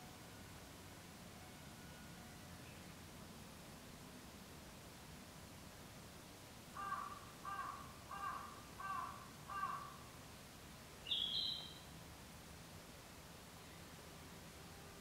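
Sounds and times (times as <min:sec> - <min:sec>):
bird calling: 0:06.8 - 0:10.0, 0:11.0 - 0:11.9.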